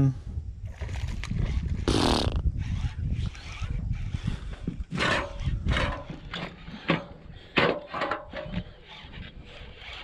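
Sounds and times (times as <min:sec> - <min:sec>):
fishing reel cranking: 0:01.3 - 0:06.9, 0:08.1 - 0:10.0.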